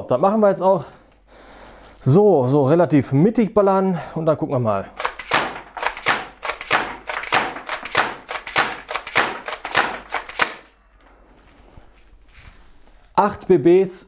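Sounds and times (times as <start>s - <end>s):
pellets hitting cardboard box: 5.0s - 10.7s
shotgun pump strokes clacking: 5.0s - 10.7s.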